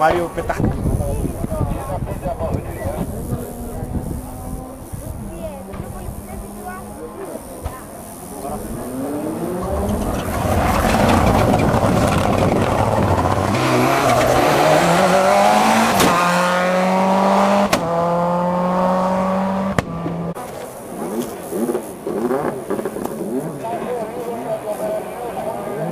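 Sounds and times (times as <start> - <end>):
rally car engine at full throttle: 2.5 - 23.8.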